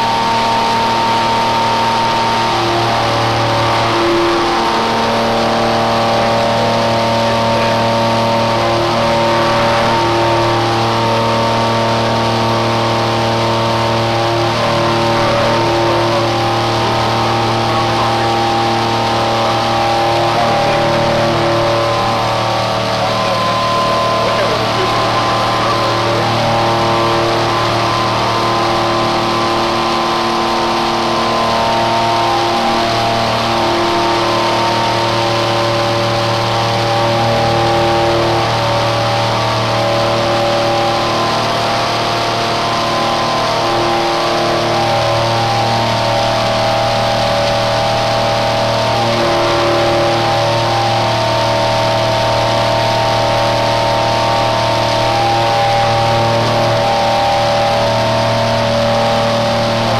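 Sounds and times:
mill spindle and cutting whine: 0:00.0 - 0:59.9.

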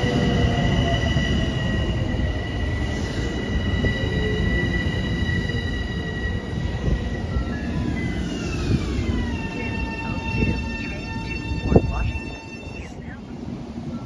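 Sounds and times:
high whining squeal: 0:00.0 - 0:13.2
train wheels rumbling on rail: 0:00.0 - 0:14.0.

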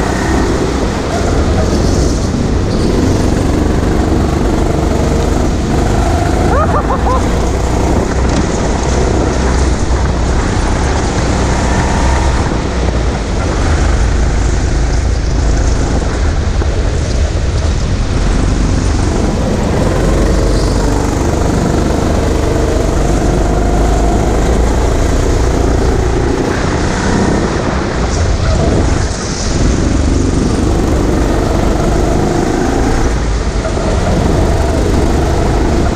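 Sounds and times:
go-kart motor under load: 0:00.0 - 0:15.6
wind rush on microphone: 0:00.0 - 0:35.9.

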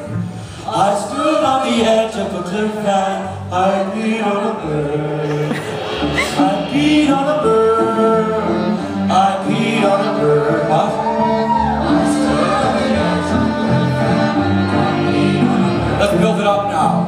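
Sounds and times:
cello: 0:00.0 - 0:17.0
man singing: 0:00.0 - 0:17.0
drums: 0:03.6 - 0:17.0.

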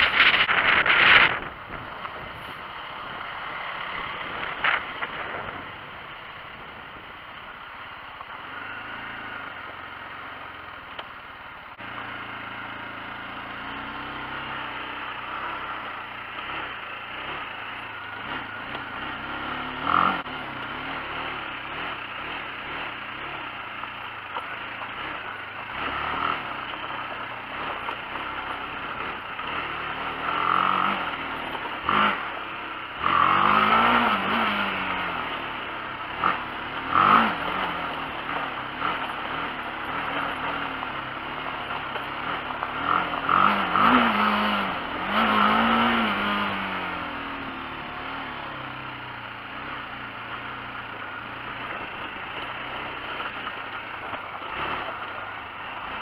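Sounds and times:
wind noise on microphone: 0:00.0 - 0:02.8, 0:04.0 - 0:07.2
motorcycle engine revving: 0:00.0 - 0:56.0.

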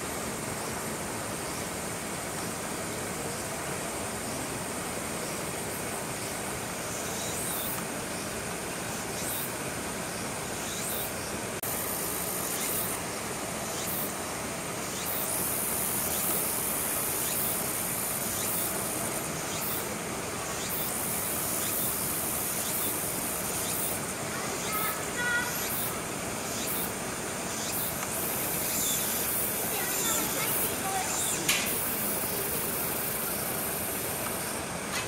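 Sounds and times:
hard rain hissing: 0:00.0 - 0:35.0
insects calling in high pulses: 0:00.0 - 0:35.0
thin high whine: 0:10.6 - 0:35.0.

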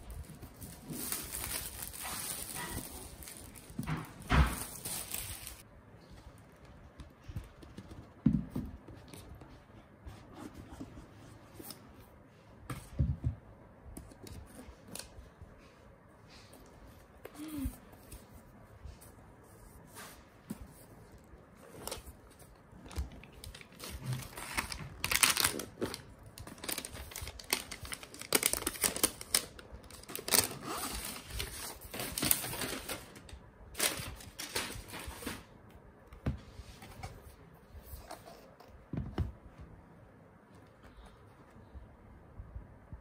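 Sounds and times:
paper rustling and crinkling: 0:00.0 - 0:07.4, 0:19.8 - 0:35.6.

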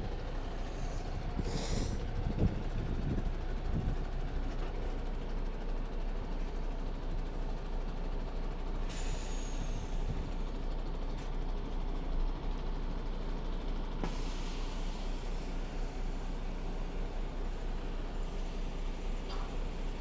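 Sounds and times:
road traffic rumble: 0:00.0 - 0:20.0
wind on microphone: 0:01.4 - 0:04.0.

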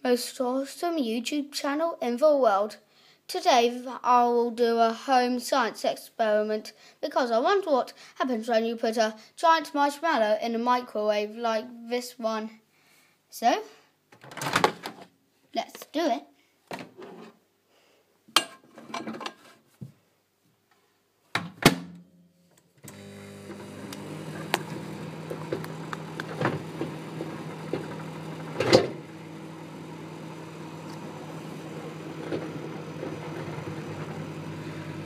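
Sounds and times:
microwave oven humming: 0:22.8 - 0:35.0.

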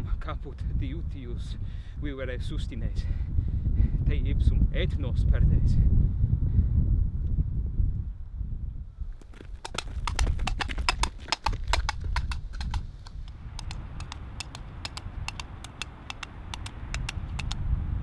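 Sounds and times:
horse hooves clip-clopping: 0:09.1 - 0:17.6.

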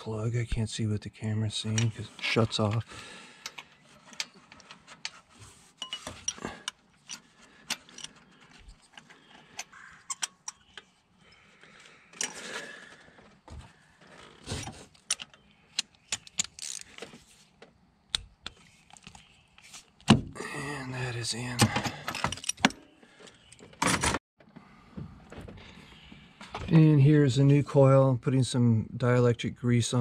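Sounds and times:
metal clicks of ratchet and socket: 0:08.9 - 0:10.9, 0:15.0 - 0:16.9.

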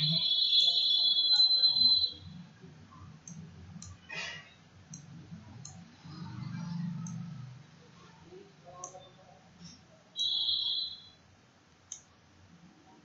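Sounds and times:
high steady tone: 0:00.0 - 0:02.6, 0:10.2 - 0:11.2
faint low hum: 0:00.0 - 0:13.0
computer mouse clicking: 0:03.2 - 0:04.1, 0:04.9 - 0:05.8, 0:06.9 - 0:07.3, 0:11.8 - 0:12.1.

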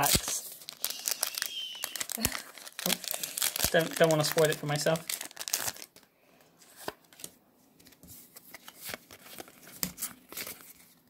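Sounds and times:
foil wrapper crinkling: 0:00.0 - 0:06.1
cards handled and slid: 0:06.6 - 0:10.9.

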